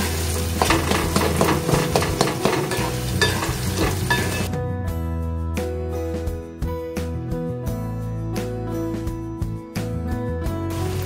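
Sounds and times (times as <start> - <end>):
food sizzling in a pan: 0.0 - 4.5, 10.7 - 11.0
background music: 0.0 - 11.0
wooden spatula scraping a pan: 0.5 - 4.5.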